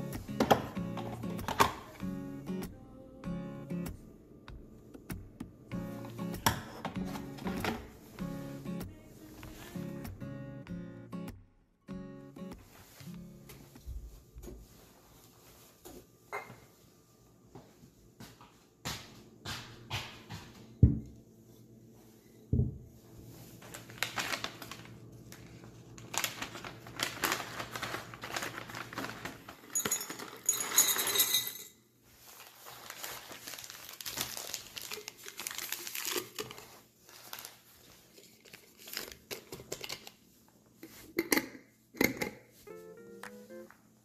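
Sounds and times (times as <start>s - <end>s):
plastic packets crinkling: 23.6s - 30.8s, 32.3s - 40.2s.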